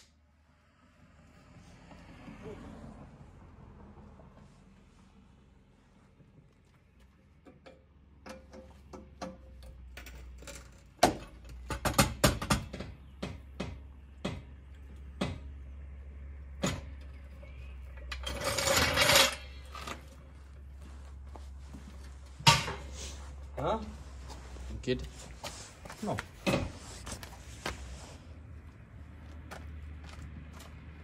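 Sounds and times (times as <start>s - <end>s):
jack scraping over asphalt: 14.7s - 30.8s.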